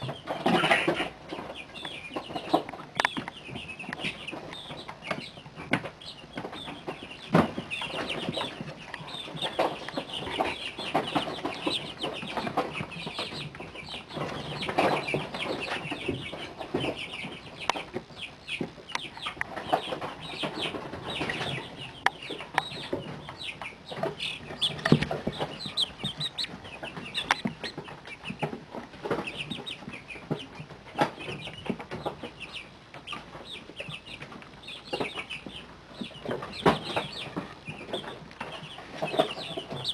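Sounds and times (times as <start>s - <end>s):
chicks peeping and chirping: 0.0s - 39.9s
low clucks: 0.0s - 39.9s.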